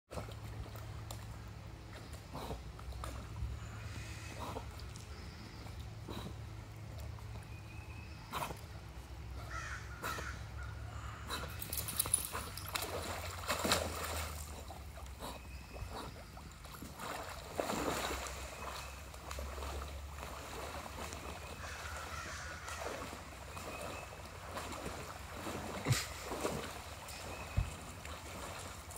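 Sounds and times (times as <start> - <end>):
water splashing: 11.3 - 28.9.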